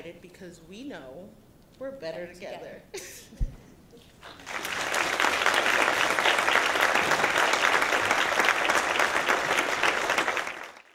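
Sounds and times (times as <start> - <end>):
audience applauding: 4.2 - 10.9.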